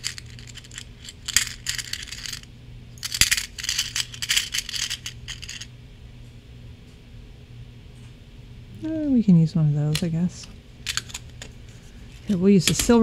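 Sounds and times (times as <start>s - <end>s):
small metal gears clinking: 0.0s - 5.7s.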